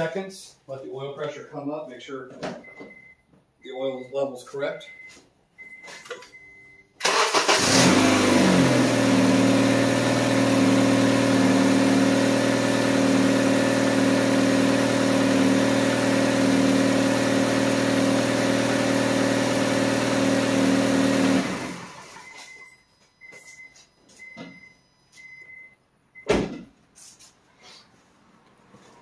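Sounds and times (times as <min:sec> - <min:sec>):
car engine starting and idling: 0:06.9 - 0:22.6.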